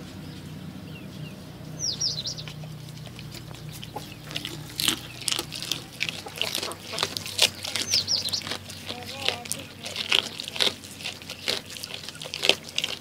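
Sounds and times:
birds chirping: 0:00.0 - 0:13.0
goat crunching on fish: 0:01.9 - 0:13.0.

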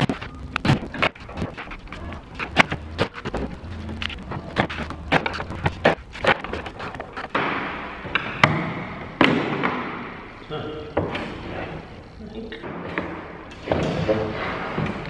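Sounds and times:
plywood parts and tools clattering: 0:00.0 - 0:09.8.

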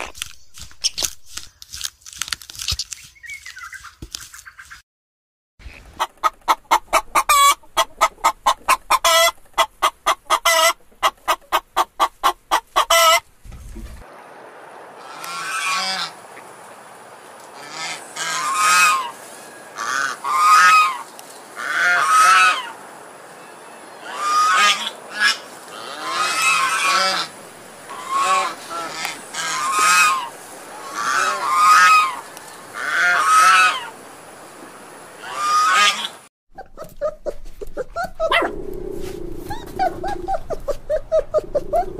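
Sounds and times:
chickens clucking: 0:05.7 - 0:13.3, 0:17.5 - 0:19.2, 0:19.8 - 0:22.8, 0:27.9 - 0:34.0, 0:39.2 - 0:41.9
geese honking: 0:06.9 - 0:13.2, 0:15.0 - 0:16.2, 0:17.6 - 0:22.8, 0:24.0 - 0:34.0, 0:35.2 - 0:36.2.

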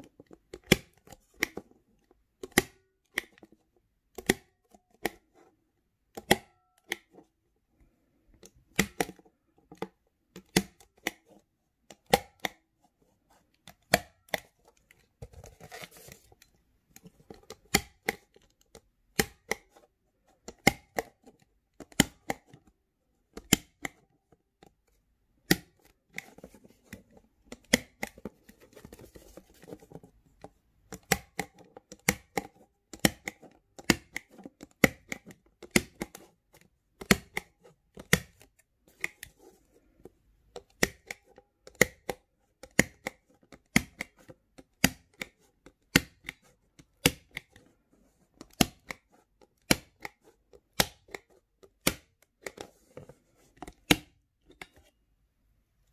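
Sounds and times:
cardboard rustling: 0:14.5 - 0:16.5, 0:28.2 - 0:30.4.

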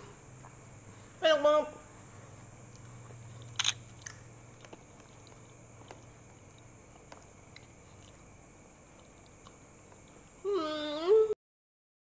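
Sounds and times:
faint chewing: 0:02.7 - 0:10.3.

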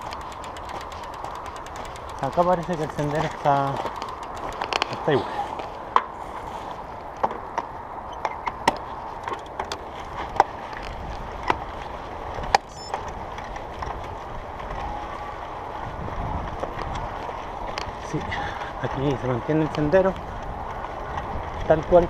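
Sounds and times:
clicks and knocks from stones: 0:00.0 - 0:05.0
bike tyres on dirt trail: 0:00.0 - 0:22.0.

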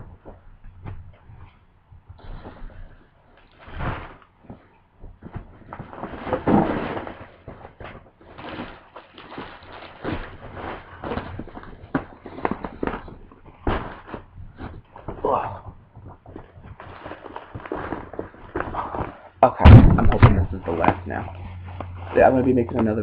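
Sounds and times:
shopping bag rustling: 0:05.3 - 0:15.4, 0:16.4 - 0:19.4.

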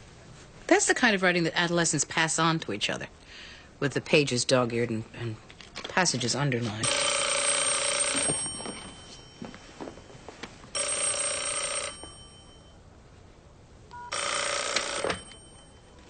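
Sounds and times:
desk telephone ringing: 0:06.8 - 0:12.8, 0:13.9 - 0:16.0.

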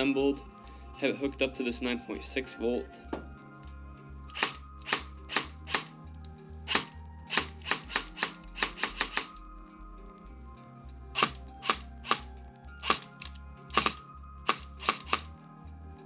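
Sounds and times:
background music with steady beat: 0:00.0 - 0:16.0
gearbox piston clacking: 0:06.7 - 0:09.4.

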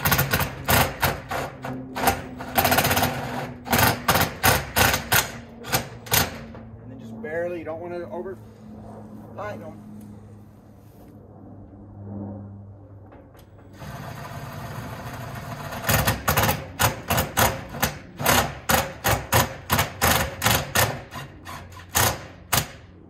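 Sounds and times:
cordless drill motor: 0:13.8 - 0:16.1.

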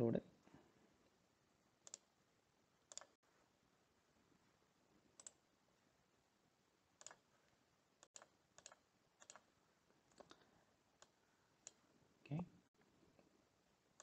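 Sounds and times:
computer mouse clicks: 0:01.8 - 0:02.1, 0:02.8 - 0:03.2, 0:05.2 - 0:05.4, 0:07.0 - 0:07.2, 0:08.0 - 0:09.5.

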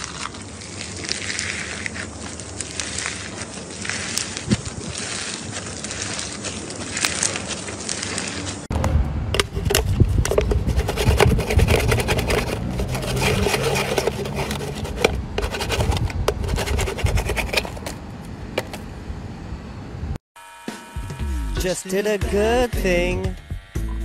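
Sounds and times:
metal cans scraping: 0:09.4 - 0:18.0, 0:18.6 - 0:18.8.

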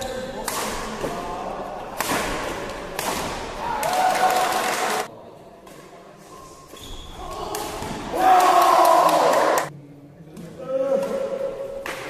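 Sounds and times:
people shouting and cheering: 0:03.5 - 0:05.1, 0:07.2 - 0:09.7.

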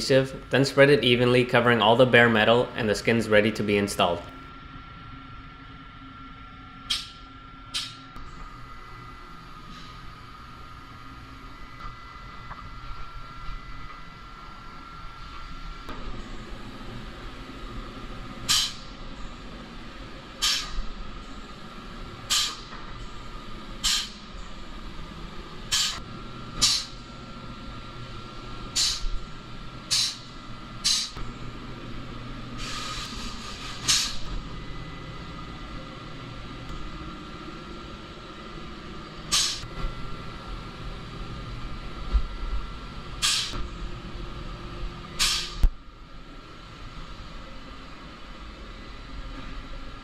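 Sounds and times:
faint steady hum: 0:00.0 - 0:50.0
pneumatic gun air hissing: 0:18.5 - 0:18.9, 0:20.4 - 0:20.8, 0:22.3 - 0:22.8, 0:23.8 - 0:24.2, 0:25.7 - 0:26.0, 0:26.6 - 0:27.0, 0:28.7 - 0:29.2, 0:29.9 - 0:31.2, 0:32.6 - 0:34.3, 0:39.3 - 0:39.7, 0:43.2 - 0:43.6, 0:45.2 - 0:45.7.

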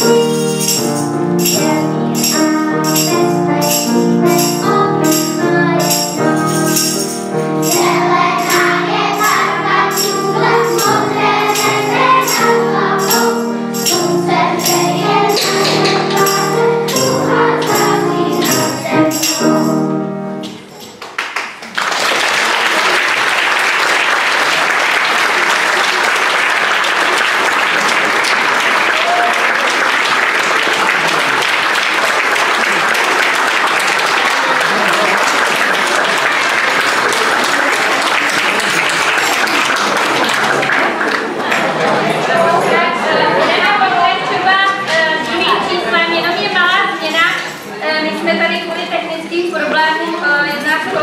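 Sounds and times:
tambourine beat: 0:00.0 - 0:21.0
audience applauding: 0:20.9 - 0:43.8.

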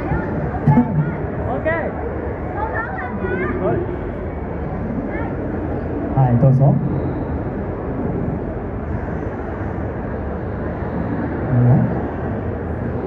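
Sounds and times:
crowd din in event hall: 0:00.0 - 0:13.0
man speaking into a microphone: 0:11.5 - 0:12.0.

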